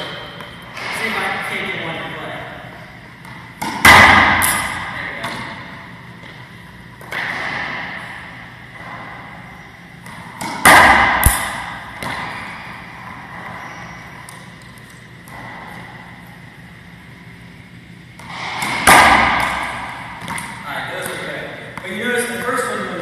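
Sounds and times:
ball bouncing: 3.2s - 5.6s, 10.0s - 13.6s, 14.2s - 16.2s, 18.1s - 22.1s
racquet smacking ball off wall: 3.3s - 5.5s, 10.0s - 12.5s, 18.2s - 21.9s.

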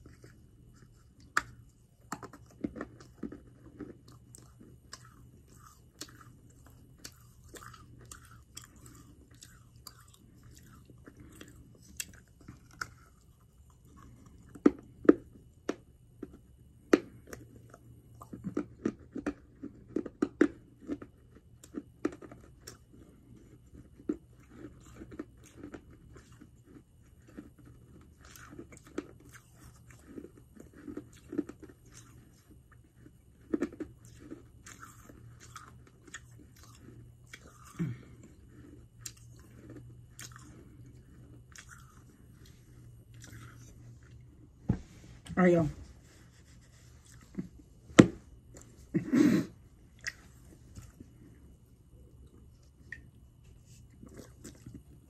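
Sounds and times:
chalk chewing crunches: 0.0s - 15.3s, 17.2s - 44.3s.

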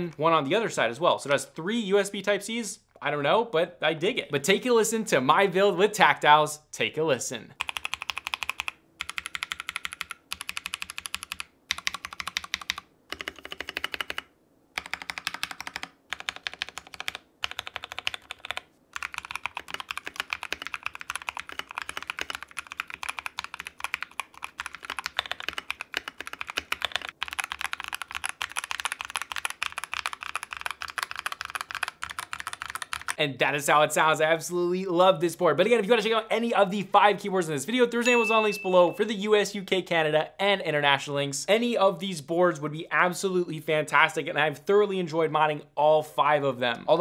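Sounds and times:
mechanical keyboard typing: 7.6s - 33.2s.

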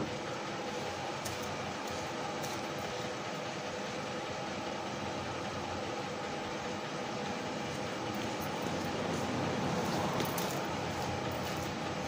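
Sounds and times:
car driving past: 8.6s - 11.6s.

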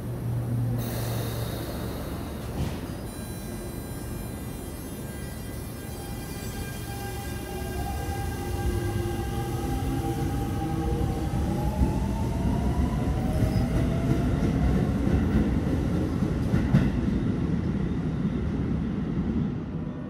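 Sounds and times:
wheels clattering on rail: 0.8s - 3.3s.

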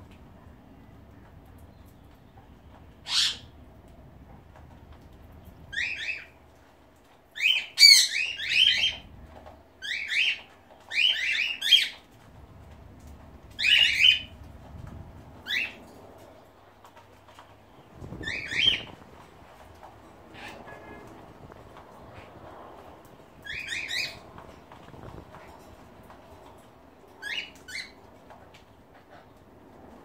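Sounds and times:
cockatiels squawking: 3.1s - 3.5s, 23.5s - 24.2s.

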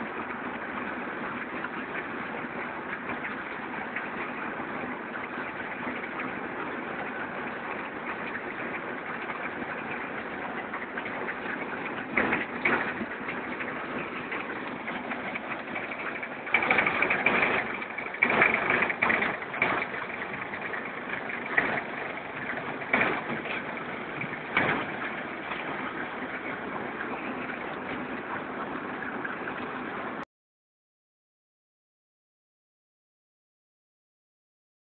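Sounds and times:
concrete mixer running: 0.0s - 30.2s
clattering bursts: 8.1s - 28.4s.

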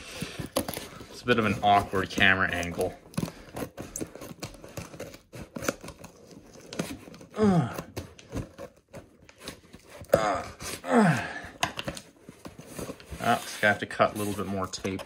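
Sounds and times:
tape tearing and crinkling: 0.0s - 11.0s, 11.6s - 15.0s
blade cutting tape and cardboard: 0.2s - 7.3s.

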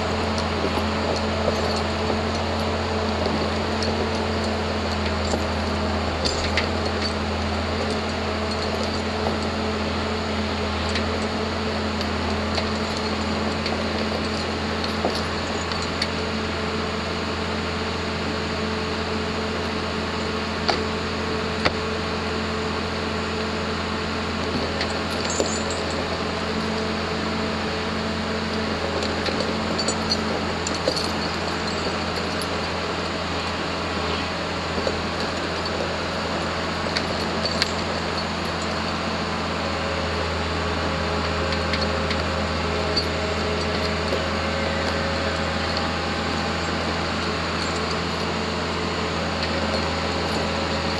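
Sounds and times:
diesel engine under load: 0.0s - 50.9s
metallic clinks and knocks: 24.6s - 26.3s, 29.0s - 32.8s, 36.9s - 39.0s, 42.9s - 48.4s.

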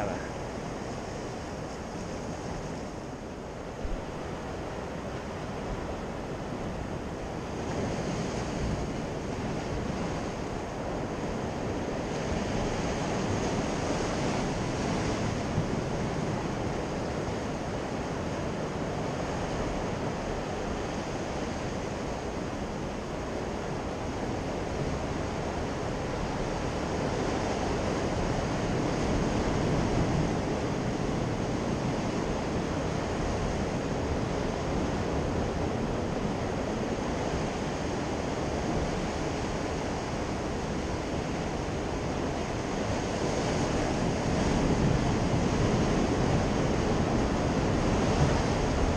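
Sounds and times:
wind on microphone: 0.0s - 48.9s
surf washing against rocks: 24.7s - 48.9s.

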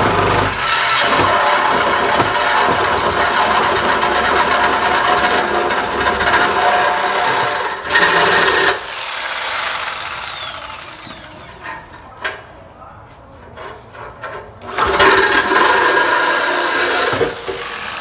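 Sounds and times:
reciprocating saw cutting metal pipe: 14.8s - 18.0s.

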